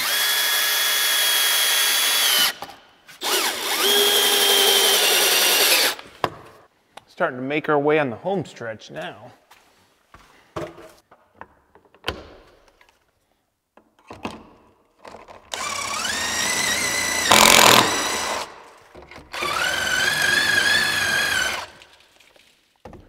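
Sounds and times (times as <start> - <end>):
cordless drill driving screws: 0.0 - 2.6, 3.2 - 6.0, 15.5 - 18.5, 19.3 - 21.9.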